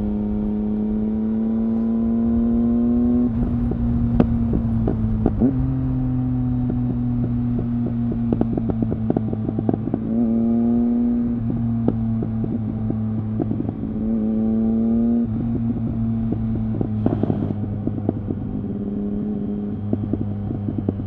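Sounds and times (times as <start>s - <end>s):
motorcycle engine revving: 0.0s - 21.0s
exhaust crackling and popping: 3.3s - 5.6s, 6.7s - 10.1s, 16.2s - 18.8s.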